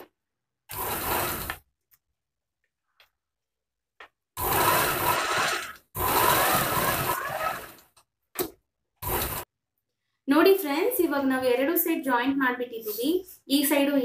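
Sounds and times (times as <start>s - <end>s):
sewing machine stitching: 0.7s - 1.7s, 4.4s - 8.0s, 9.0s - 9.5s.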